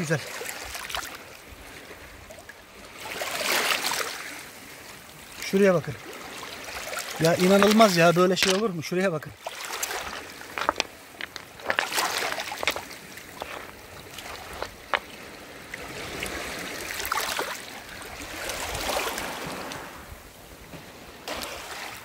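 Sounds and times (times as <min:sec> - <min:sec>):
waves washing over pebbles: 0:00.0 - 0:22.0.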